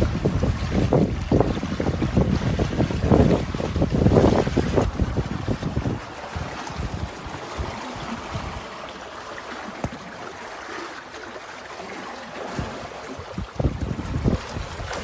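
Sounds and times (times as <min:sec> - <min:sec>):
wind buffeting microphone: 0:00.0 - 0:08.8, 0:12.5 - 0:15.0
water rushing and splashing: 0:00.0 - 0:15.0.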